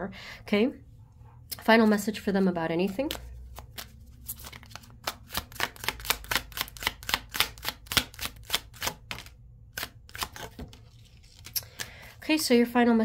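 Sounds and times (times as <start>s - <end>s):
cards being shuffled: 2.8s - 12.0s.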